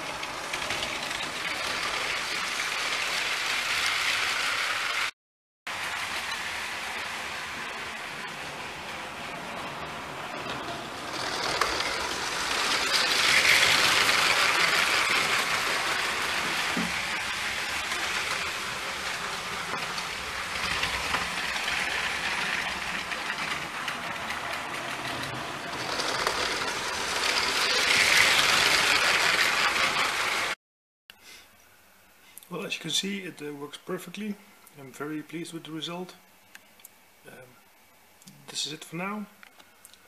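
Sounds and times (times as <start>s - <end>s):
toy trains rattling on plastic track: 0.0s - 5.1s, 10.6s - 30.6s.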